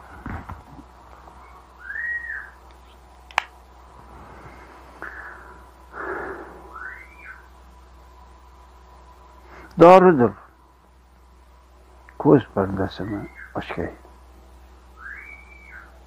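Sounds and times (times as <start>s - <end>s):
whistled notes: 1.4s - 2.6s, 6.7s - 7.5s, 15.0s - 16.0s.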